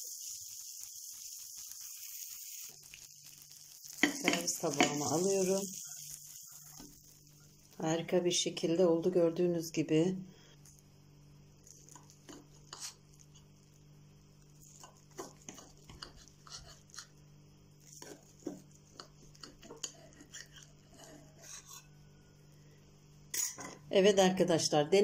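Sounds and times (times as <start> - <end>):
steady low hum: 6.7 - 24.9.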